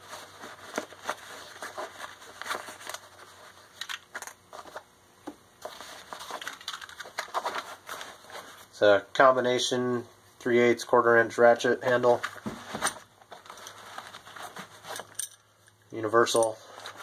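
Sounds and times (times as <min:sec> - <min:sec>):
fabric rustling: 0:12.1 - 0:15.3
metal tools clicking and scraping: 0:14.8 - 0:16.6.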